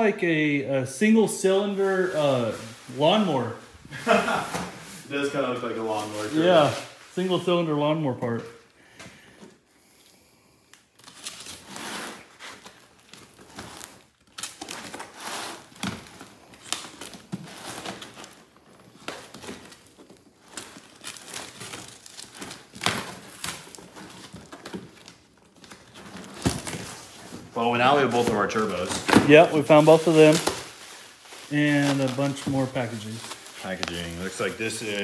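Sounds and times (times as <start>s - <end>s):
cardboard and plastic rustling: 1.4s - 9.7s, 11.0s - 35.0s
packing tape tearing: 10.7s - 27.4s.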